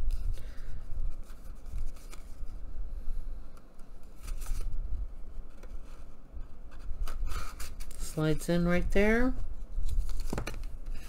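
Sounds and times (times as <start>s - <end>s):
paper rustling and scraping on card: 1.0s - 2.6s, 4.1s - 4.8s, 5.4s - 8.4s.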